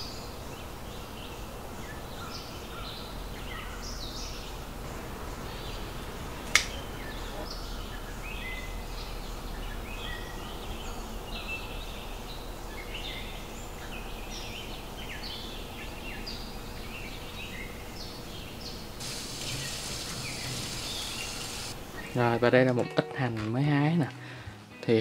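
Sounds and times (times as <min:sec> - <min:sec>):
small birds chirping: 0:00.0 - 0:22.4
background hum: 0:00.0 - 0:22.7
bright hiss: 0:19.0 - 0:22.0.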